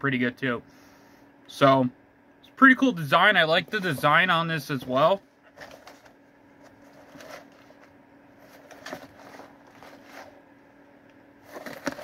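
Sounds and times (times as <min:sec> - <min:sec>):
faint steady hum: 0:00.0 - 0:12.0
cardboard box rustling and tapping: 0:11.5 - 0:12.0.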